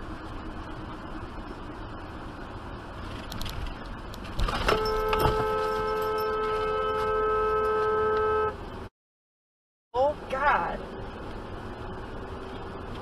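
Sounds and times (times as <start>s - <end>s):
car road noise: 0.0s - 8.9s, 10.0s - 13.0s
car horn long honk: 4.6s - 8.7s.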